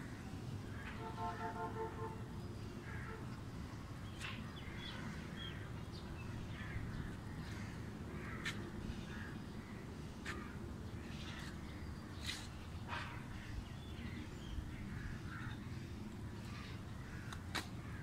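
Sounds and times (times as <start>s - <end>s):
crows cawing: 2.8s - 3.2s, 7.4s - 10.6s, 15.0s - 15.6s.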